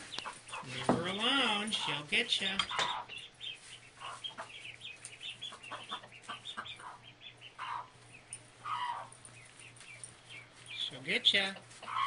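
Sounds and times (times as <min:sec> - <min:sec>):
baby chicks peeping: 0:00.0 - 0:12.0
hen clucking: 0:00.0 - 0:12.0.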